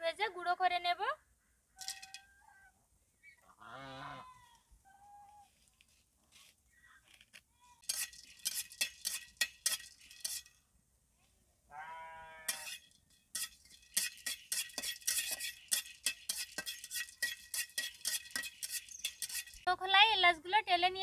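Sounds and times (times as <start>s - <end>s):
bleat: 3.4s - 5.5s, 11.7s - 12.7s
spatula scraping metal pan: 7.8s - 10.5s, 12.5s - 19.7s.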